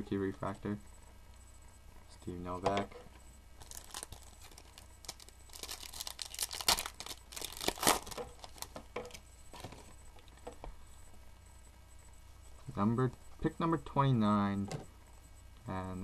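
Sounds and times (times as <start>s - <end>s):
trading cards rustling: 3.6s - 8.8s.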